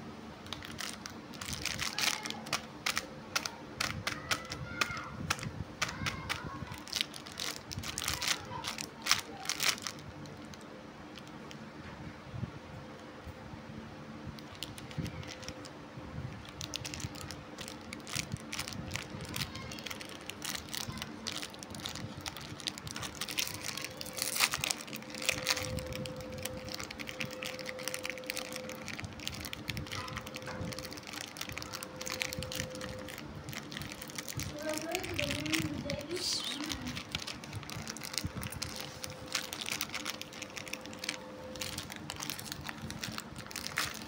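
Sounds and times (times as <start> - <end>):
plastic wrapper crinkling: 0.4 - 11.7, 14.4 - 15.7, 16.3 - 44.0.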